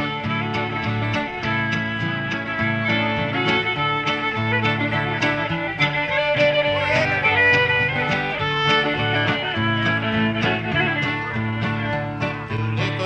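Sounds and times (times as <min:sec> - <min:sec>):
fiddle melody: 0:00.0 - 0:13.0
strummed acoustic guitar: 0:00.0 - 0:13.0.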